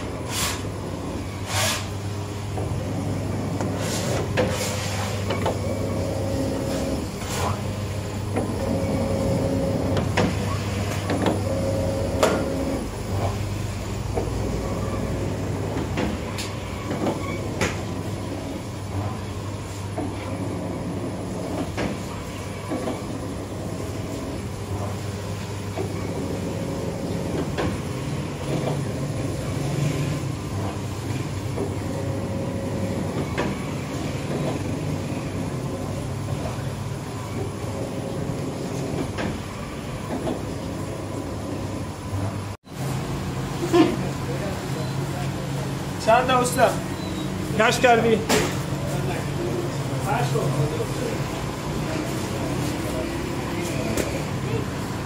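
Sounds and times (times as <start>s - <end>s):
high machine whine: 0.0s - 43.5s
dough machine motor hum: 0.0s - 55.0s.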